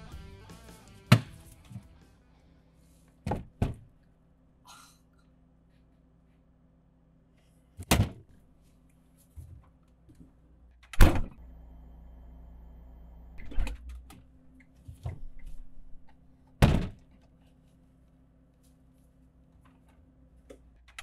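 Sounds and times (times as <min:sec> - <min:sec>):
refrigerator hum: 0:01.1 - 0:21.0
refrigerator door thud: 0:11.0 - 0:11.3, 0:16.6 - 0:17.0.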